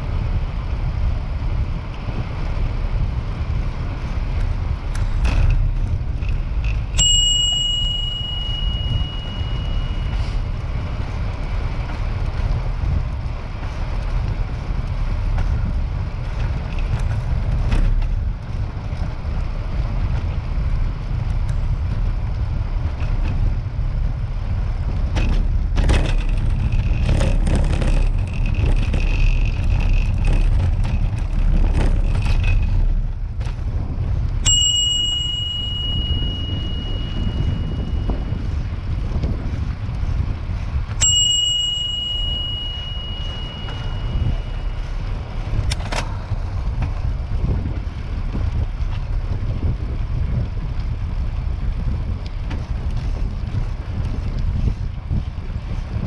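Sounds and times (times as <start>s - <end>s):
wind and riding rumble: 0.0s - 56.0s
bicycle bell ding: 6.9s - 10.6s, 34.4s - 38.5s, 40.9s - 45.4s
rattling: 25.1s - 38.0s.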